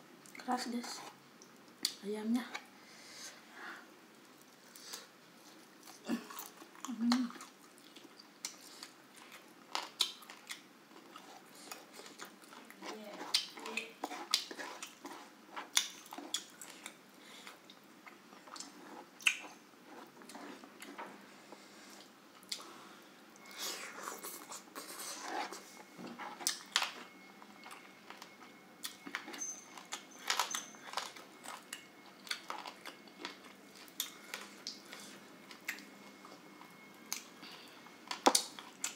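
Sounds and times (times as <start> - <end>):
wet chewing smacks and clicks: 6.3 - 17.0.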